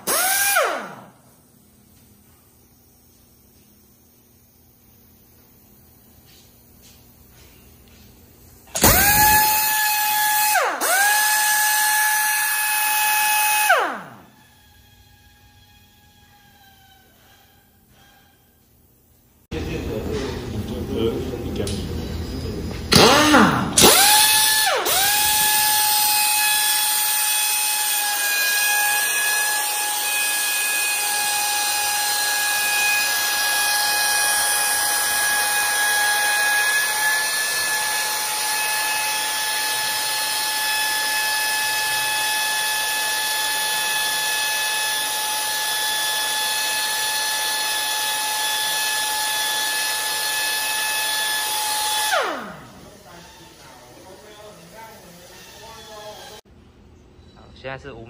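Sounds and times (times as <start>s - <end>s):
air impact wrench whine: 0.0s - 7.0s, 8.4s - 18.2s, 21.6s - 56.5s.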